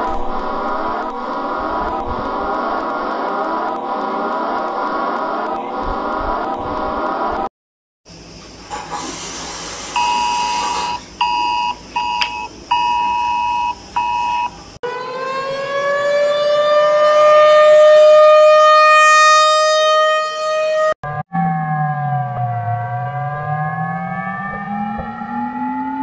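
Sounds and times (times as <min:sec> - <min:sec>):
siren wailing: 0:00.0 - 0:07.5, 0:10.0 - 0:26.0
hiss like running water: 0:08.7 - 0:11.0.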